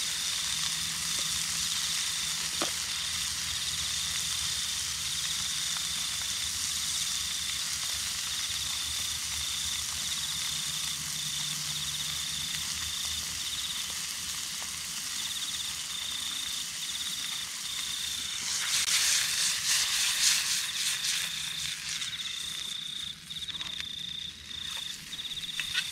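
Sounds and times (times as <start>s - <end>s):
crackling noise: 0.0s - 25.9s
steady hiss: 0.0s - 25.9s
insect trilling: 15.1s - 25.9s.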